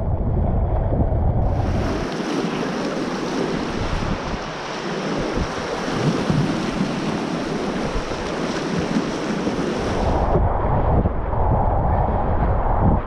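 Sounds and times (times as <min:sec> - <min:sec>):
wind buffeting microphone: 0:00.0 - 0:13.0
whitewater rushing and splashing: 0:01.5 - 0:10.3.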